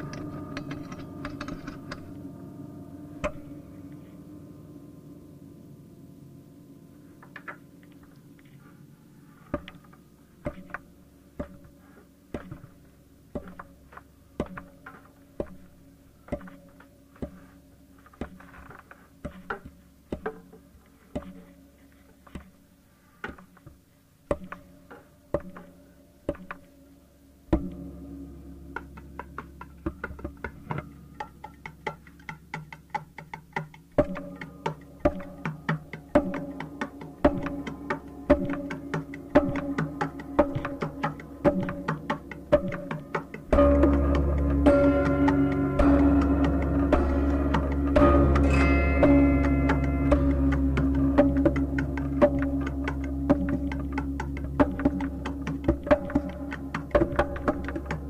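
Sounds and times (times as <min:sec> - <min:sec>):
loud low music layer: 0:00.0 - 0:08.4, 0:27.3 - 0:32.2, 0:34.0 - 0:58.0
low sustained drone: 0:00.0 - 0:10.4, 0:27.0 - 0:32.2, 0:34.2 - 0:58.0
sharp percussive strikes: 0:27.5 - 0:58.0.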